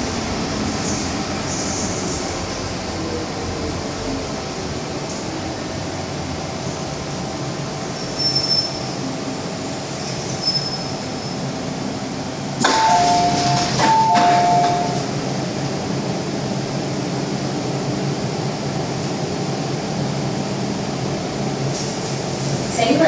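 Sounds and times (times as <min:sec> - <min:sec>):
train rumble and hum: 0:00.0 - 0:23.0
high brake squeals: 0:08.0 - 0:09.0, 0:10.0 - 0:11.5
train doors opening clunk: 0:12.6 - 0:15.3.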